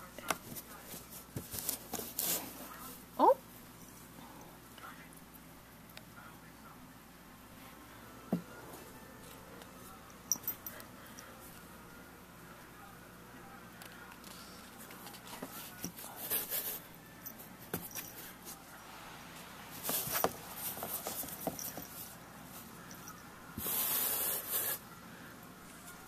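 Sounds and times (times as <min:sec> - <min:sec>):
rustling and scraping on cardboard: 0:00.3 - 0:02.8, 0:19.7 - 0:22.2.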